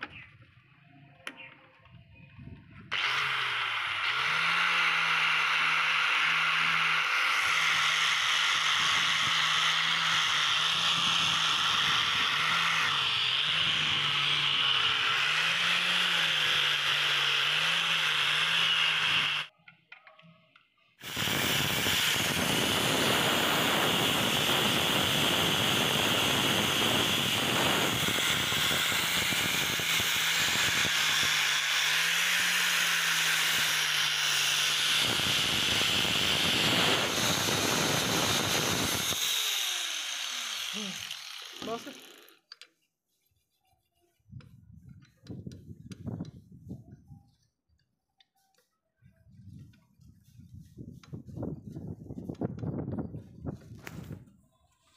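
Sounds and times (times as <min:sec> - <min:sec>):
angle grinder grinding steel: 0:02.9 - 0:19.5, 0:21.0 - 0:42.7.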